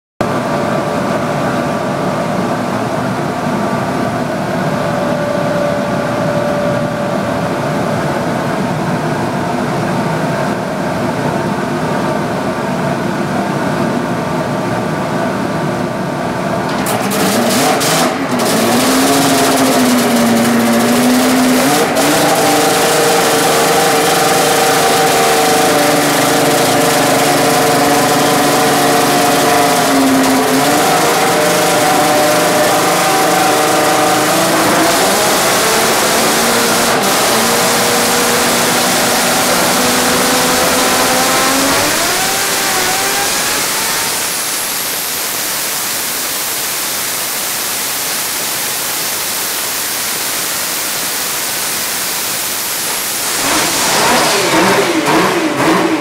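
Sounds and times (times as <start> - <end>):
snowmobile engine running: 16.9 - 47.4, 48.1 - 56.0.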